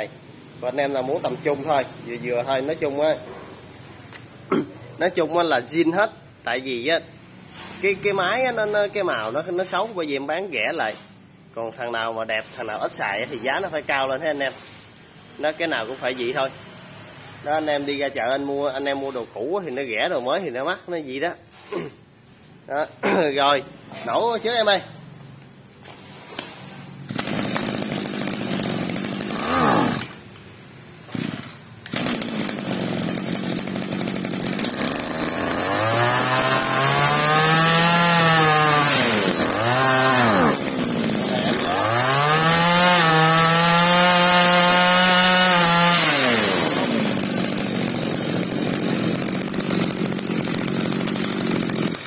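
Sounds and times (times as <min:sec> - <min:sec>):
brush cutter engine pull-started: 0:25.9 - 0:30.2, 0:31.0 - 0:52.0.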